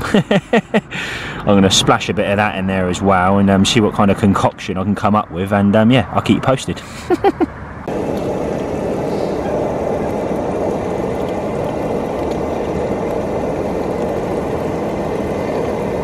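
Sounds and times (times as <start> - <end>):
gas camping stove burner rushing: 7.9 - 16.0.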